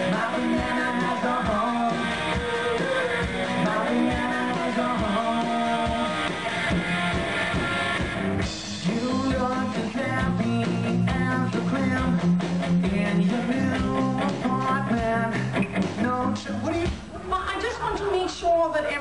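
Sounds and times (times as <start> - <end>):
electric guitar: 0.0 - 17.5
drum beat: 0.0 - 18.2
live rock music: 0.0 - 19.0.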